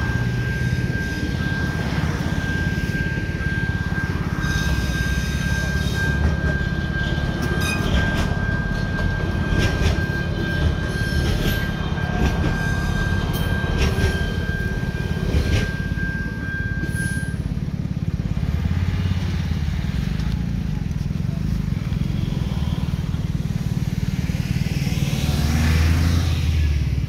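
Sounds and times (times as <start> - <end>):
crossing signal high tone: 0.0 - 18.1
train rumbling: 0.0 - 21.9.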